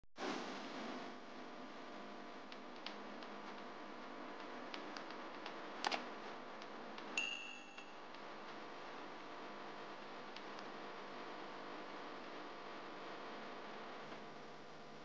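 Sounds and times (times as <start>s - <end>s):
faint hum and hiss: 0.2s - 15.0s
short bell-like ding: 7.2s - 8.0s.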